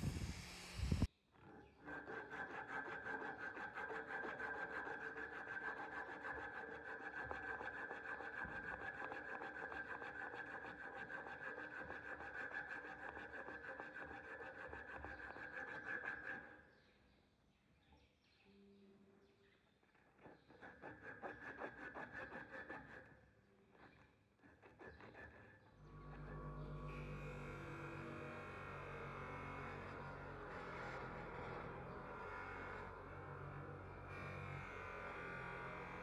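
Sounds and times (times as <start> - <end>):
angle grinder sanding: 0.0 - 1.1.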